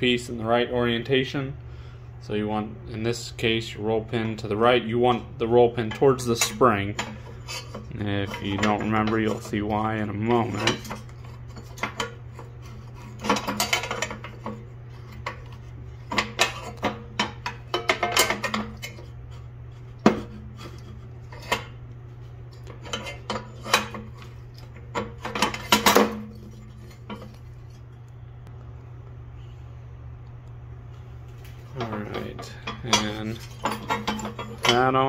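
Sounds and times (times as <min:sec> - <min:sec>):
metal clinks and scrapes: 0:05.8 - 0:27.9, 0:31.6 - 0:35.0.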